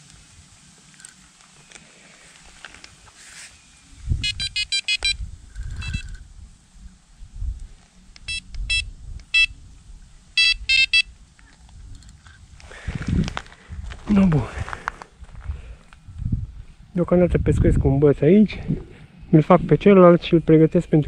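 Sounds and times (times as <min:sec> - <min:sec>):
bite alarm short beeps: 0:04.2 - 0:05.2, 0:05.8 - 0:06.1, 0:08.2 - 0:09.6, 0:10.4 - 0:11.1.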